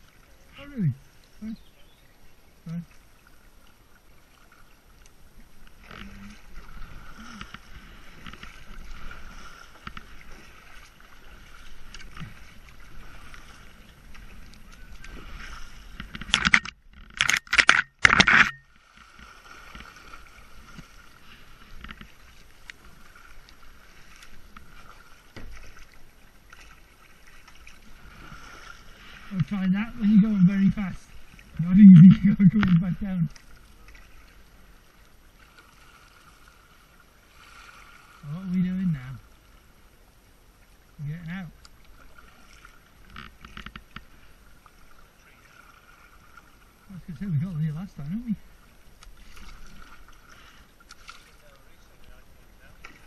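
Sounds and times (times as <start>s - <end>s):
kayak paddles dipping in water: 0.0s - 53.0s
loud splashes and knocks: 24.1s - 26.0s.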